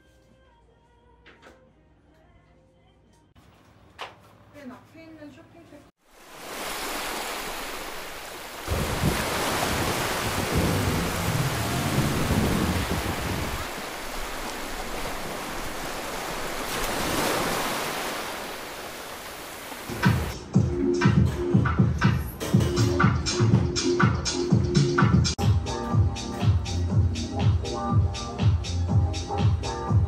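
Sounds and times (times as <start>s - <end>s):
surf on rocky shore: 6.0s - 20.4s
wind on microphone: 8.6s - 15.9s.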